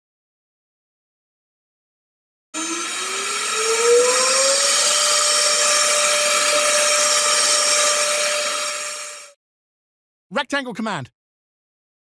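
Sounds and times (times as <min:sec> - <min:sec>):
loud rushing cutting noise: 0:02.6 - 0:09.4
router spindle whine: 0:02.6 - 0:09.4.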